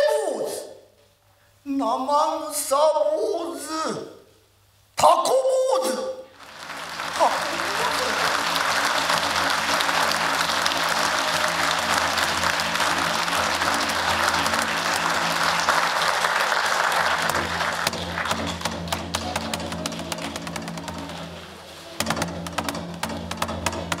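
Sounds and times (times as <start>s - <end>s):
audience applauding: 6.4s - 24.0s.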